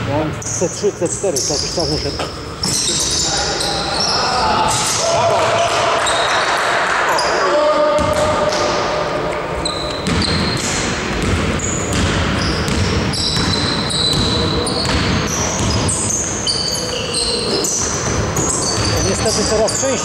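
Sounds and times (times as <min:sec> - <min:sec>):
sneakers squeaking on floor: 0:00.1 - 0:05.1, 0:05.9 - 0:20.0
basketball bouncing: 0:08.0 - 0:08.8, 0:09.7 - 0:19.9.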